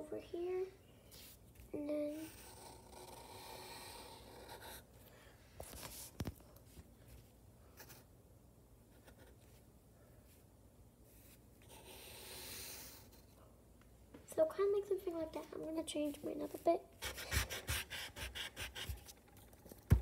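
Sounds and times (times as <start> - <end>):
pencil scratching on paper: 2.1 - 4.9, 11.1 - 13.3, 16.0 - 19.2.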